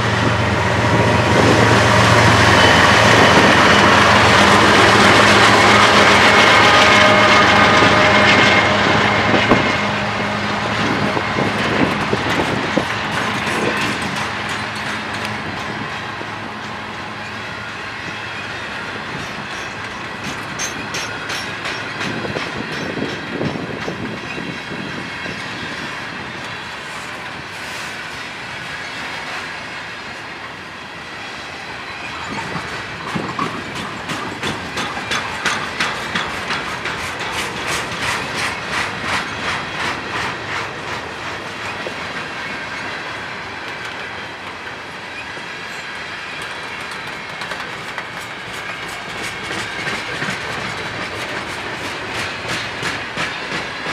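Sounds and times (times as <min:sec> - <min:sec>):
train rumble: 0:00.0 - 0:53.9
train wheels clicking over rail joints: 0:10.8 - 0:28.1, 0:32.0 - 0:53.9.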